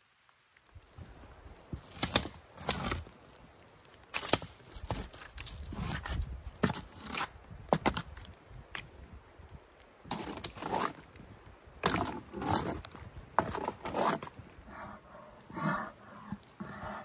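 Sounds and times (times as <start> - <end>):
branch cracking against tree trunks: 0.7 - 8.9
scraping and rustling: 11.8 - 17.0.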